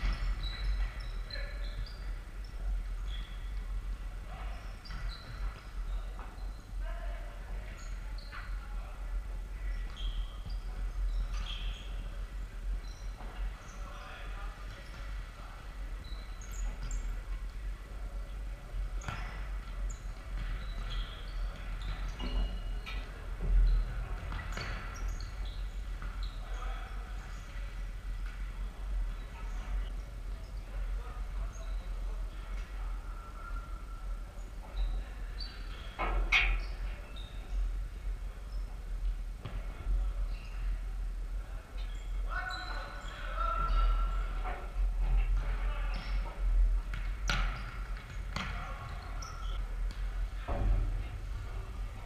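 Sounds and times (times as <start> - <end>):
shoes squeaking on wooden floor: 4.3 - 6.6.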